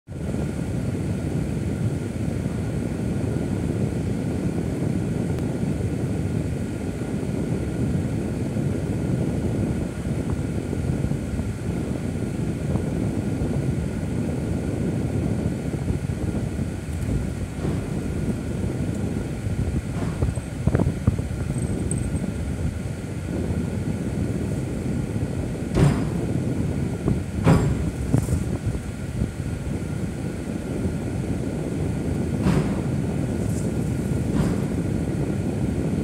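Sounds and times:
car rolling low rumble: 0:00.1 - 0:36.0
faint high whine: 0:16.1 - 0:25.6.

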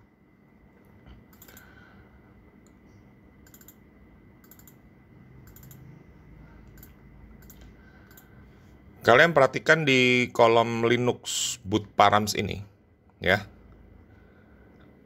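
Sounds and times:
computer mouse clicks: 0:01.3 - 0:01.7, 0:03.4 - 0:03.8, 0:04.4 - 0:04.8, 0:05.4 - 0:05.9, 0:06.6 - 0:08.3.

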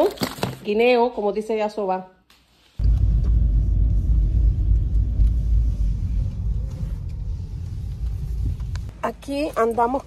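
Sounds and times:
loud low rumble: 0:02.8 - 0:09.0.

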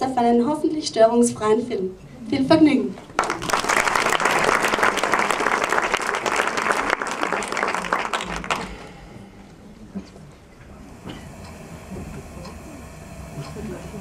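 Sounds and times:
audience applauding: 0:03.0 - 0:09.2.

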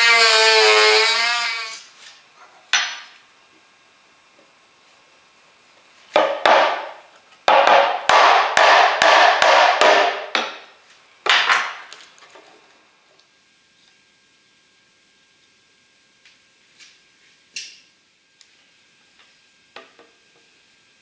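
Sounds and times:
hammer knocking on chisel: 0:07.5 - 0:10.6.

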